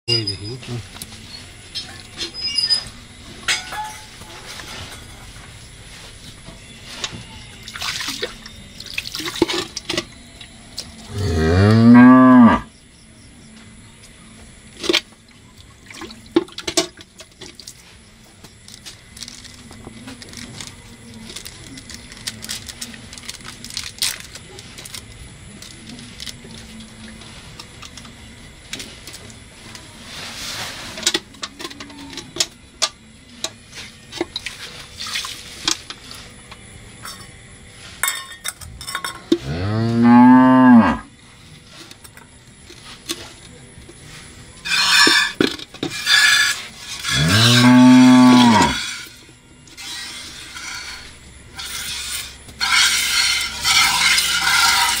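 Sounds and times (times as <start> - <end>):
cow mooing: 11.1 - 12.7, 39.4 - 41.1, 47.1 - 48.8.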